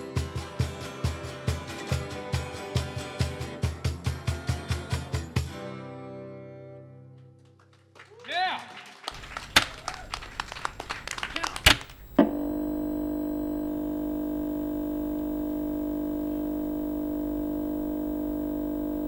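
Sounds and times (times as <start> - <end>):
people clapping: 7.3 - 12.0
electronic drone: 12.1 - 19.0.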